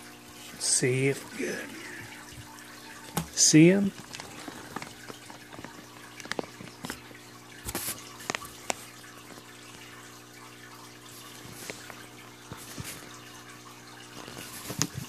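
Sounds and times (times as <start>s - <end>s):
water shifting in bag: 1.2s - 15.0s
plastic bag crinkling: 4.0s - 7.1s.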